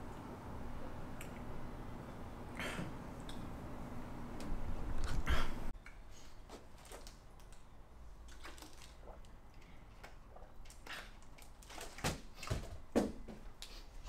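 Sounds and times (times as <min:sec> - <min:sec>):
plastic bottle rustling: 0:06.4 - 0:07.6, 0:08.3 - 0:09.3.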